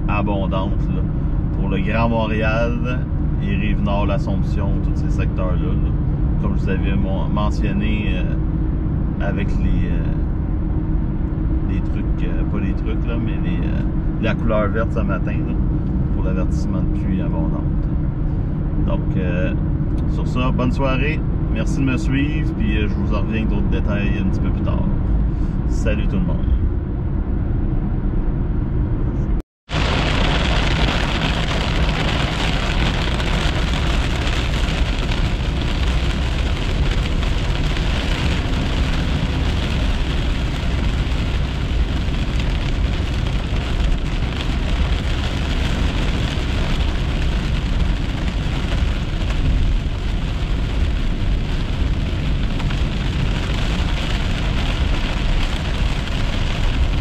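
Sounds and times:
highway cabin noise: 0.0 - 57.0
heavy rain on car: 29.7 - 57.0
tyre noise on wet road: 29.7 - 57.0.

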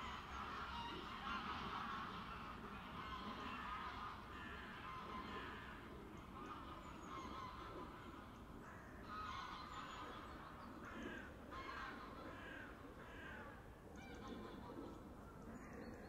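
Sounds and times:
geese honking: 0.0 - 5.8, 9.0 - 10.5
low outdoor background: 0.0 - 16.0.

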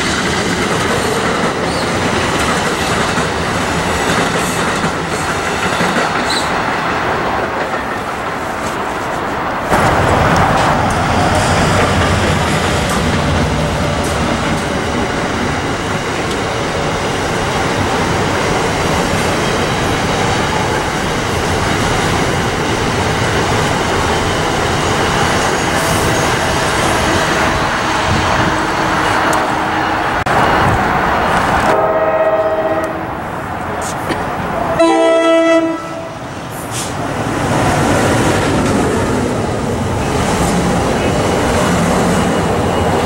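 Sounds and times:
train wheels on rails: 0.0 - 43.0
train horn: 31.7 - 33.1, 34.8 - 36.2.

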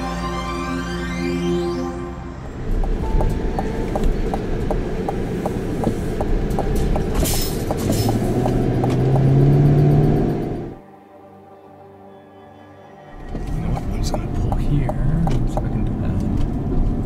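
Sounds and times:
car road and engine noise: 0.0 - 10.8, 13.2 - 17.0
regular ticking: 2.4 - 10.8, 13.3 - 17.0.

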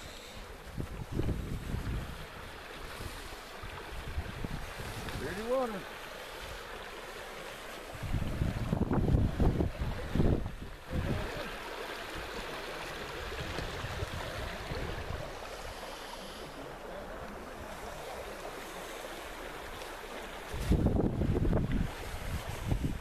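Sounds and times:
wind gusting on microphone: 0.0 - 5.8, 7.9 - 11.6, 13.1 - 15.9, 20.4 - 23.0
river current rushing over riffles: 0.0 - 23.0.

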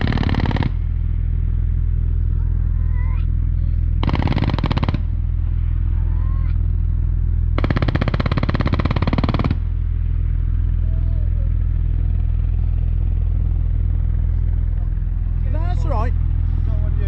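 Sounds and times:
distant machine gun burst: 0.0 - 1.1, 4.0 - 5.4, 7.5 - 9.8
steady low rumble: 0.0 - 17.0.

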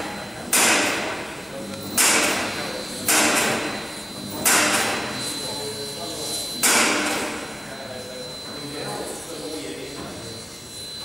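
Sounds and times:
heavy metal clanks echoing: 0.5 - 5.2, 6.6 - 7.6.

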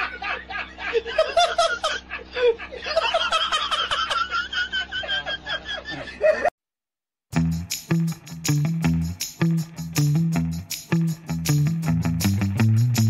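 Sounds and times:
person laughing: 0.0 - 6.5.

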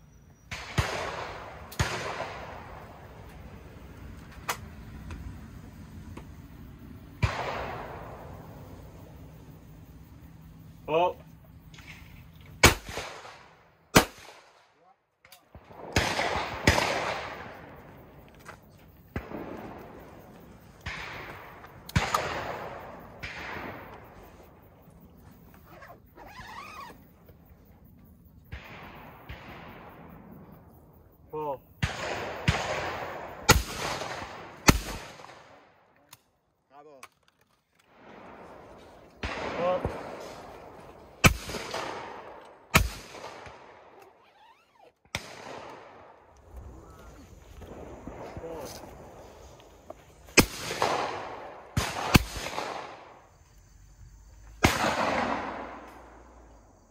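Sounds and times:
shotgun shots echoing: 0.5 - 3.2, 7.1 - 8.6, 12.6 - 17.8, 19.1 - 24.5, 31.8 - 35.8, 37.9 - 44.2, 45.0 - 46.8, 50.3 - 53.2, 54.6 - 56.3.

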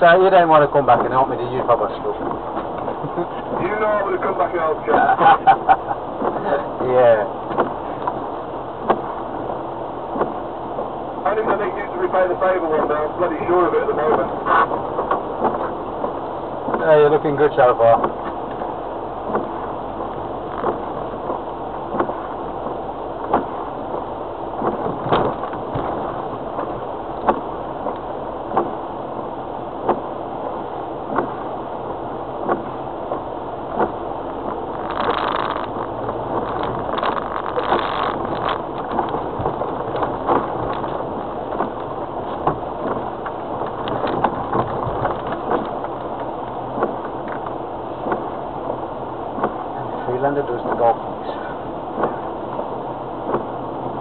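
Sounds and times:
cabin rumble: 0.0 - 8.2.

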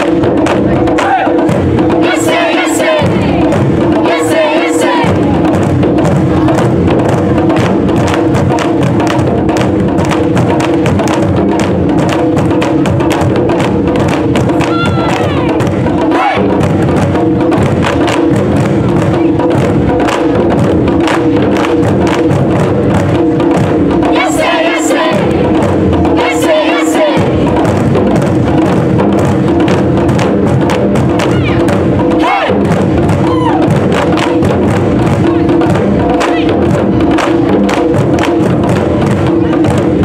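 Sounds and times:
taiko drumming ensemble: 0.0 - 40.0
players shouting calls: 1.0 - 1.4, 14.6 - 16.5, 24.2 - 25.4, 31.2 - 33.7.

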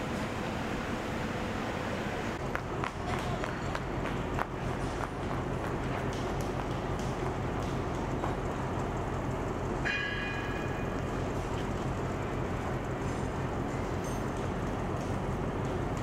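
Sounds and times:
diesel train idling: 0.0 - 16.0
metallic ring: 9.8 - 11.0.

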